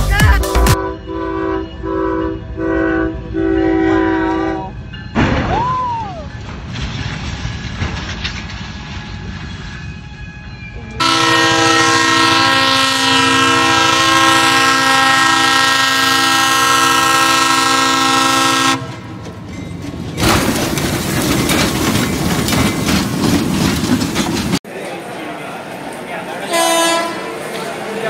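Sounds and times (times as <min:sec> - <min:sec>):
low train rumble: 0:00.0 - 0:28.0
locomotive air horn blast: 0:00.6 - 0:04.7, 0:11.0 - 0:19.1, 0:26.5 - 0:27.4
locomotive rumbling and scraping: 0:06.2 - 0:28.0.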